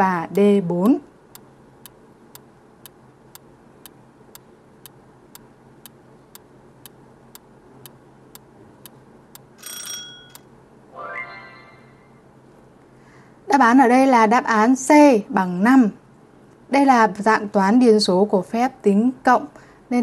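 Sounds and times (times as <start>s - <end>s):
clock ticking: 0.3s - 2.0s
ringing chime: 9.6s - 10.4s.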